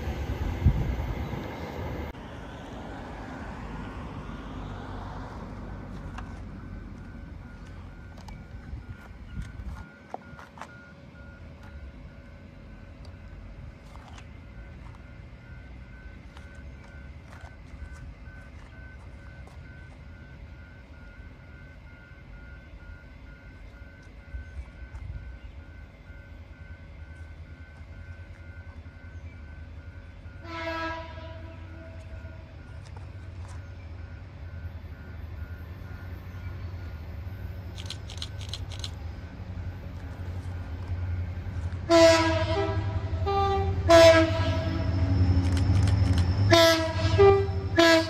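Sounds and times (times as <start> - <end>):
train rumble: 0.0 - 48.0
locomotive horn blast: 30.4 - 32.7, 41.8 - 45.4, 46.4 - 48.0.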